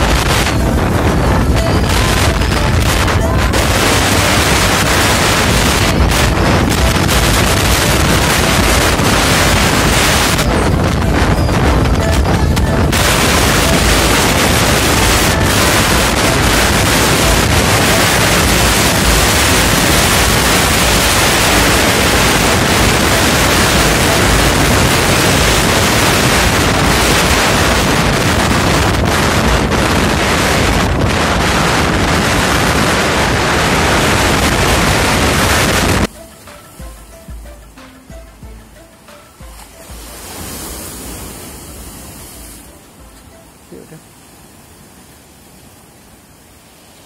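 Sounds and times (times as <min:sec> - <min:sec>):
wind rushing over microphone: 0:00.0 - 0:36.9.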